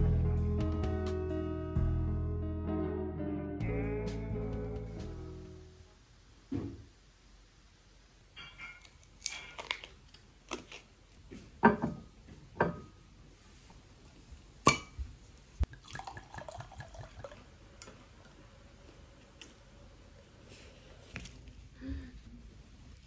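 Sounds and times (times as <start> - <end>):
wine pouring into a glass: 15.7 - 18.4.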